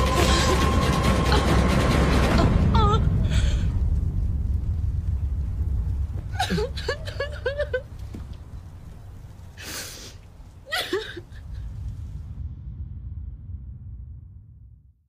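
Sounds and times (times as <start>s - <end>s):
woman sobbing: 0.0s - 1.7s, 2.3s - 3.8s, 6.3s - 8.0s, 10.7s - 11.6s
low steady rumble: 0.0s - 9.6s, 10.2s - 15.0s.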